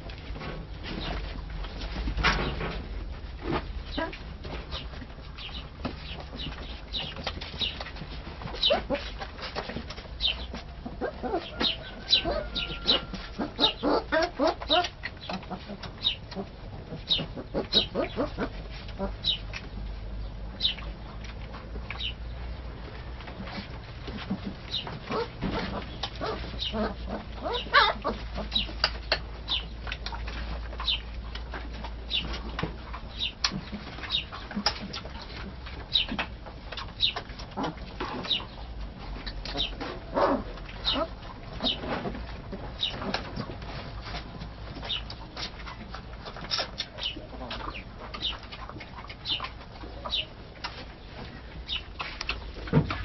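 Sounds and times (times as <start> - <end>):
puppies squeaking and whimpering: 3.9 - 19.5, 23.6 - 31.1, 36.9 - 43.5, 44.1 - 52.6.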